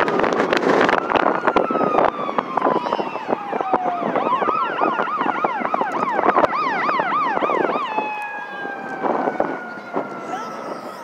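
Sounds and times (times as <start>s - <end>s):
firework bangs and crackles: 0.0s - 2.1s
emergency siren wailing and yelping: 0.0s - 11.0s.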